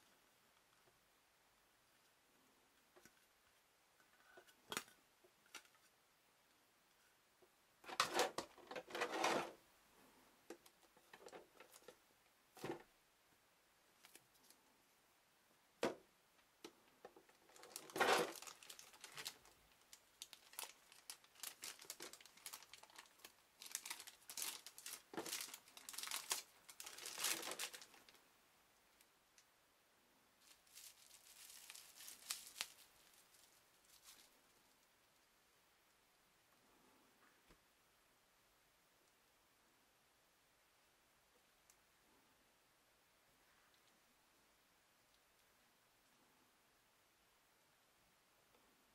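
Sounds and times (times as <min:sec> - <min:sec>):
plastic packaging crinkling: 0:17.3 - 0:28.2, 0:30.4 - 0:34.8.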